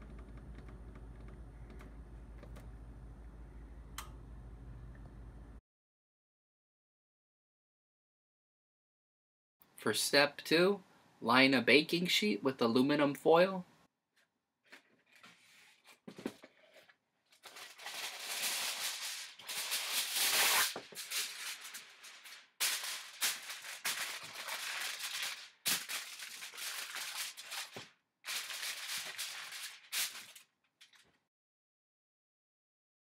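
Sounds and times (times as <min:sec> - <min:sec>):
aluminum foil crinkling: 0:16.7 - 0:31.1.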